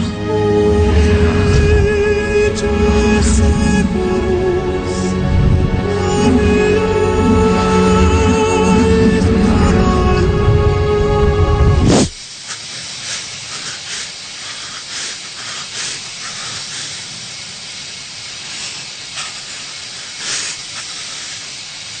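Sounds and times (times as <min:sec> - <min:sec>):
music: 0:00.0 - 0:11.9
steady hiss: 0:00.0 - 0:22.0.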